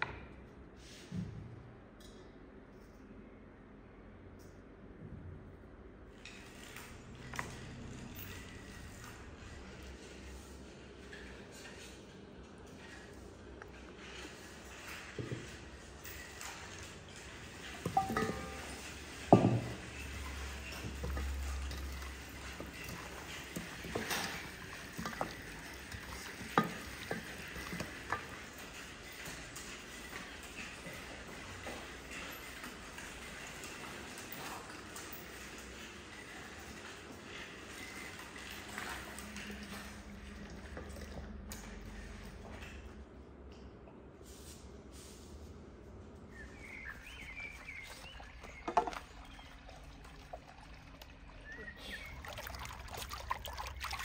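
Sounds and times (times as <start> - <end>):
fountain trickling: 16.1 - 41.5, 46.7 - 54.0
plate knocking on stone: 17.9 - 18.7
small birds chirping: 46.3 - 49.8, 51.3 - 52.8.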